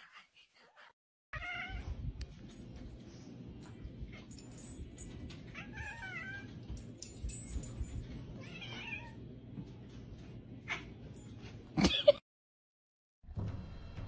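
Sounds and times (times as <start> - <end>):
cat meowing: 1.4 - 2.0.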